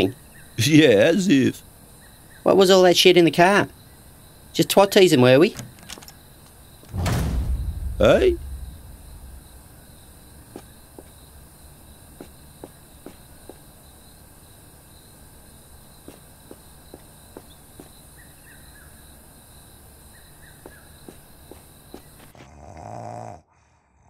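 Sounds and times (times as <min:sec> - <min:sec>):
low hum: 0:06.9 - 0:10.5.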